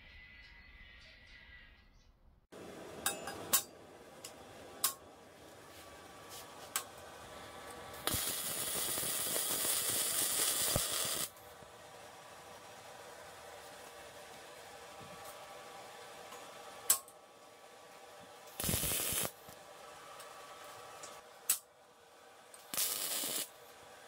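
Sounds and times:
welder arc hissing: 6.3s - 11.4s, 18.5s - 19.6s, 22.6s - 23.8s.

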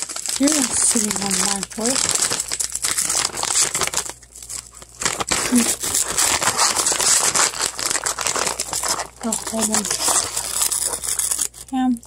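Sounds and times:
crinkling handling noise: 0.0s - 12.0s.

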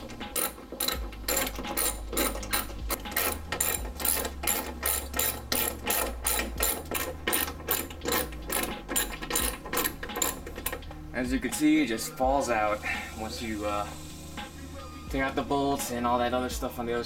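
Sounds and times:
socket ratchet clicking: 0.0s - 11.0s.

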